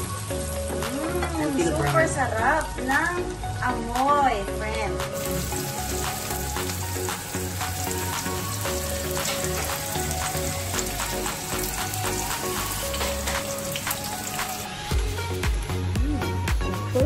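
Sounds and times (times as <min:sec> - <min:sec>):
onions sizzling in butter: 0:00.0 - 0:03.6, 0:05.1 - 0:15.0
background music with low beat: 0:00.0 - 0:17.0.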